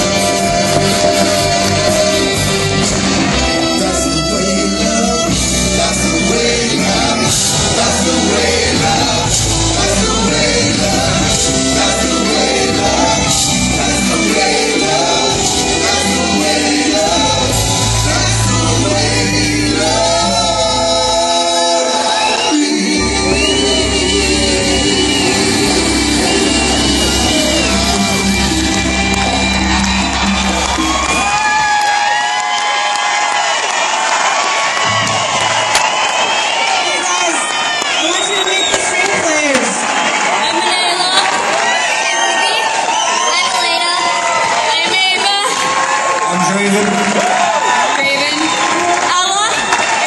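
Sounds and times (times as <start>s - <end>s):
violins: 0.0s - 21.2s
steady bass line: 0.0s - 21.4s, 22.7s - 31.8s
person singing: 0.0s - 31.6s
rock band with violins: 0.0s - 50.0s.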